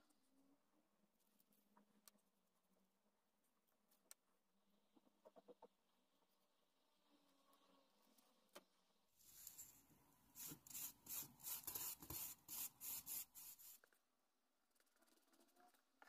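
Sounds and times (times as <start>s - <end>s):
brush scrubbing wood: 10.4s - 13.8s.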